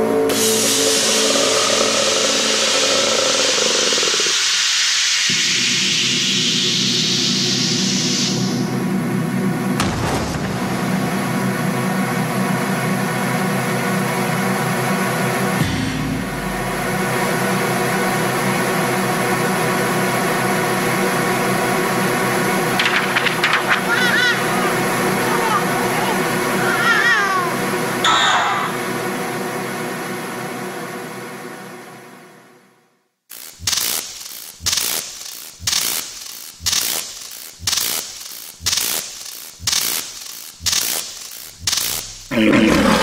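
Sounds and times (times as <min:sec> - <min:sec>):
loud steady hiss: 0:00.0 - 0:09.7, 0:33.3 - 0:42.4
low drone: 0:00.0 - 0:09.9, 0:10.6 - 0:32.6.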